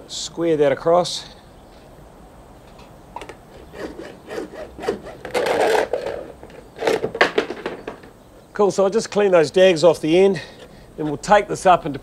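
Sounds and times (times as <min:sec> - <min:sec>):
hacksaw cutting plastic pipe: 0:03.2 - 0:07.1.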